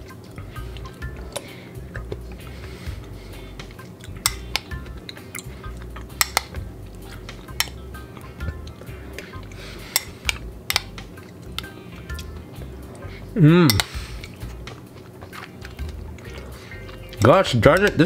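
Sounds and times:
soft background music: 0.0 - 18.0
sharp spoon taps: 6.2 - 6.6.

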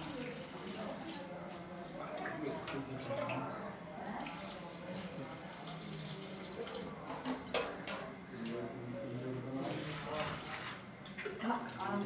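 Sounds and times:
water trickling and splashing: 0.0 - 3.5, 4.1 - 7.2, 9.6 - 12.0.

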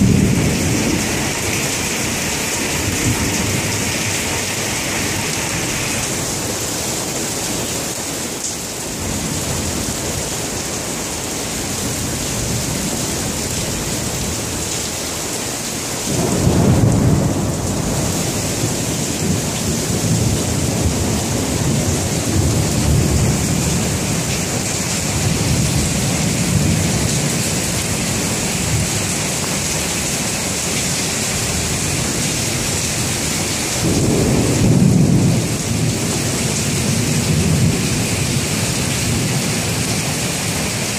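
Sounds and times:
thunder rumbling: 0.0 - 6.5, 16.1 - 30.6, 31.3 - 40.9
heavy rain falling: 0.0 - 40.9.

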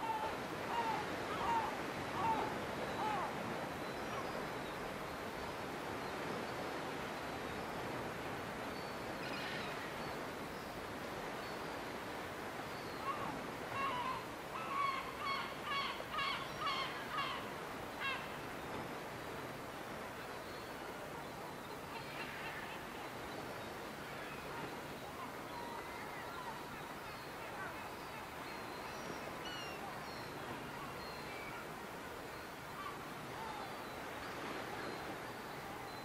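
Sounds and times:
seagulls calling: 0.0 - 3.4, 13.0 - 18.4, 21.8 - 23.2
sea and wind rushing: 0.0 - 36.0.

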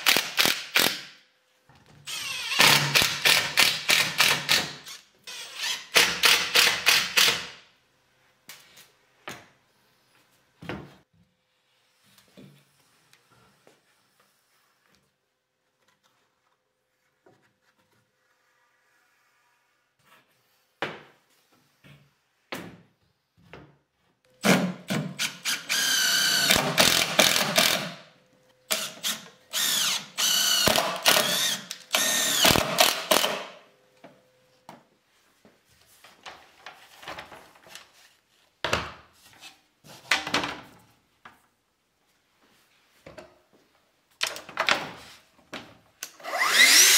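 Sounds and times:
cordless drill driving screws: 25.2 - 28.0, 28.7 - 33.5, 46.1 - 46.9.

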